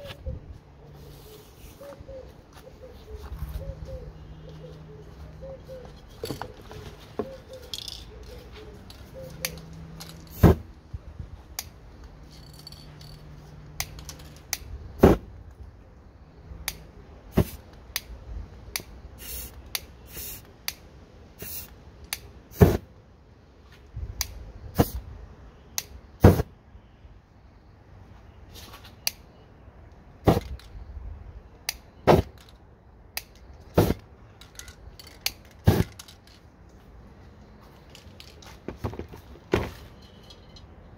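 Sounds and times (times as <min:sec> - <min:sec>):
spray can hissing: 0:19.2 - 0:20.5, 0:21.4 - 0:21.7.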